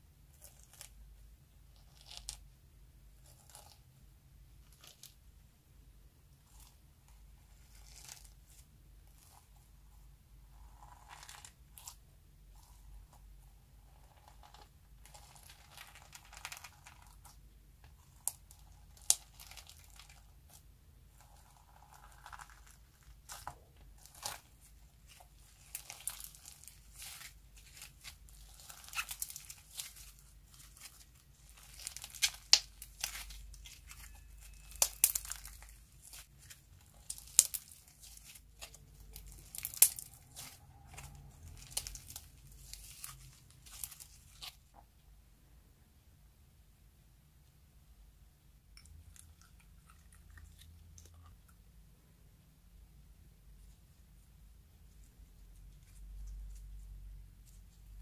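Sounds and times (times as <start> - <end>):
slime crackling and popping: 13.9 - 17.4, 18.0 - 44.6.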